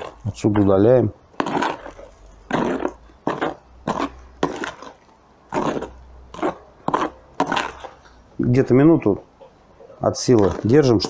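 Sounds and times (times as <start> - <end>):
spoon squelching wet mass: 0.0 - 8.8.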